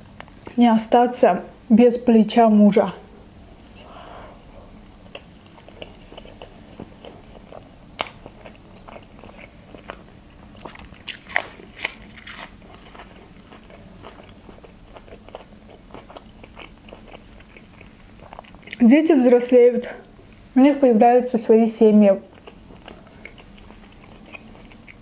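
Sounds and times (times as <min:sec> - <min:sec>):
soft chewing with mouth clicks: 0:04.6 - 0:18.8, 0:22.3 - 0:25.0
crunching bites into green onion: 0:10.8 - 0:13.2.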